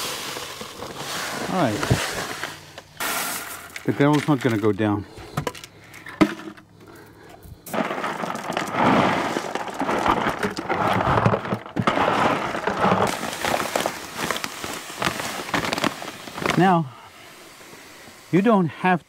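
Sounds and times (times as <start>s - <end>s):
gravel clattering: 0.0s - 18.8s.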